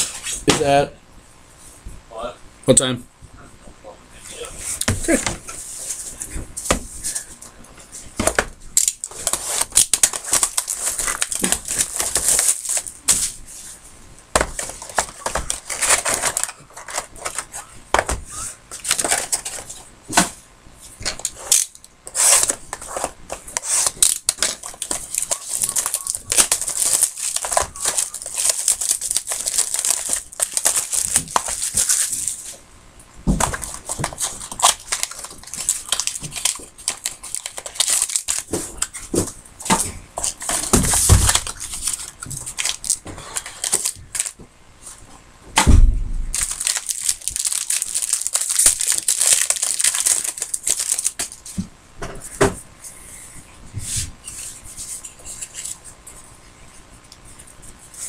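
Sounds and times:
cardboard and wrapper tearing: 0:08.8 - 0:13.2, 0:14.4 - 0:17.5, 0:18.8 - 0:19.6, 0:21.2 - 0:32.6, 0:33.4 - 0:38.9, 0:40.2 - 0:44.4, 0:46.3 - 0:51.4.

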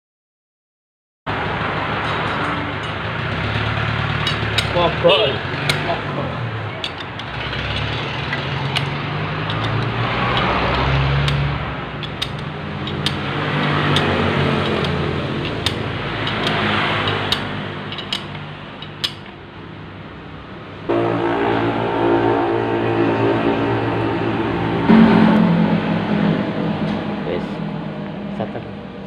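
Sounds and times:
engine humming in background: 0:01.3 - 0:29.0
metal clinks of wrench and parts: 0:06.8 - 0:11.4, 0:12.0 - 0:19.4.

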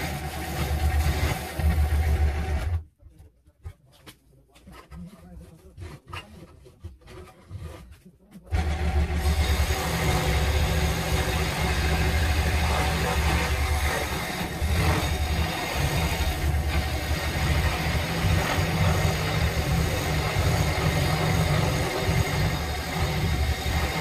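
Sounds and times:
scroll saw buzzing: 0:00.0 - 0:02.8, 0:08.5 - 0:24.0.

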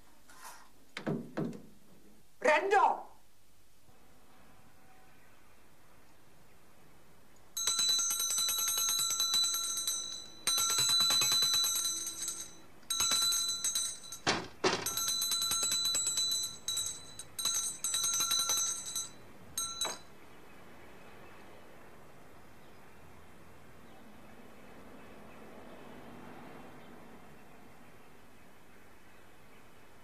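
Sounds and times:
bell trilling: 0:07.6 - 0:20.1.

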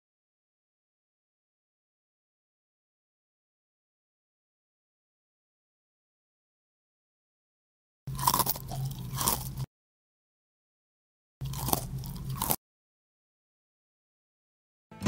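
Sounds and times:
crunchy chewing of cereal: 0:08.1 - 0:09.7, 0:11.4 - 0:12.6.

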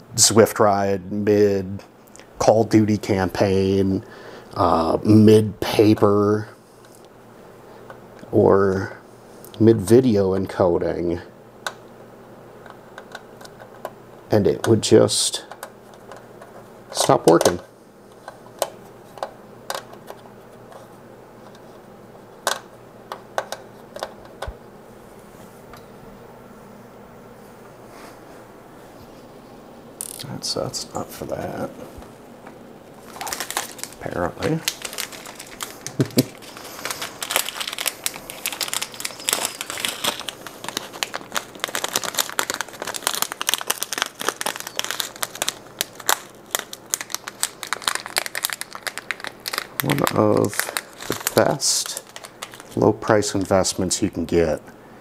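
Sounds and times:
plastic bag crinkling: 0:33.0 - 0:53.9.

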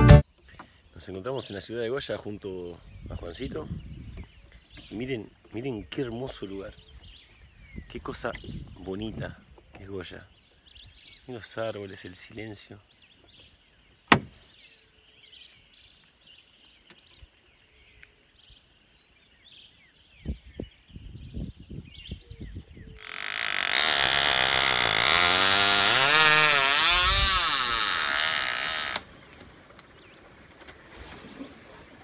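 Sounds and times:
loud motor noise: 0:23.0 - 0:29.1
high insect drone: 0:23.0 - 0:32.0.

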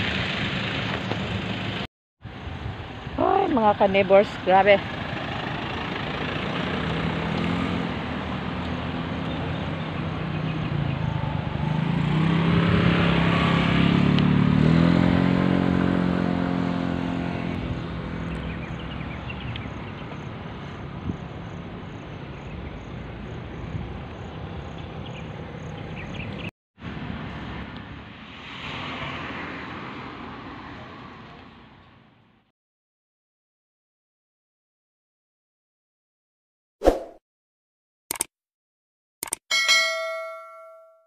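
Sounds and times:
roadside traffic noise: 0:00.0 - 0:32.5
vehicle engine passing: 0:03.8 - 0:20.6.

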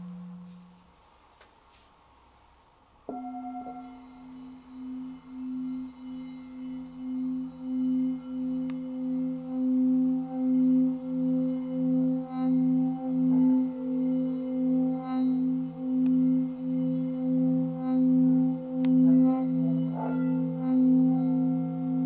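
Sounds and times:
felt mallets striking bowls: 0:03.1 - 0:22.0
singing bowls ringing: 0:03.1 - 0:22.0.

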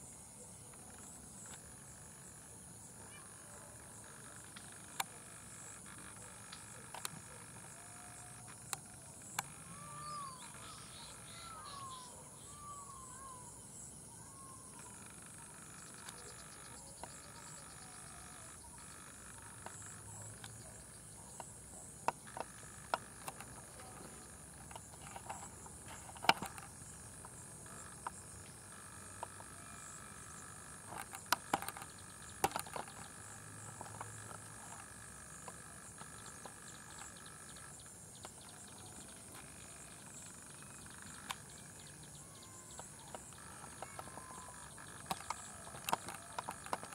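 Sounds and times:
insects buzzing high: 0:00.0 - 0:46.9
low pulsing frog call: 0:00.4 - 0:46.9
sharp clicks and snaps: 0:29.0 - 0:39.6, 0:42.7 - 0:46.9.

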